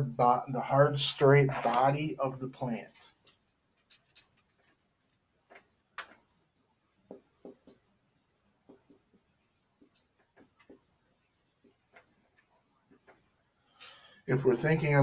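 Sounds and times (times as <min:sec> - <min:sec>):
marker squeaking on whiteboard: 0:07.1 - 0:13.5.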